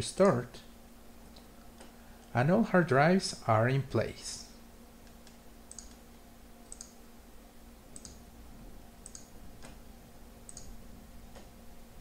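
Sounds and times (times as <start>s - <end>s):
faint steady hum: 0.0s - 12.0s
computer mouse clicking: 5.0s - 6.0s, 6.7s - 7.0s, 7.9s - 8.2s, 9.0s - 9.8s, 10.5s - 10.7s.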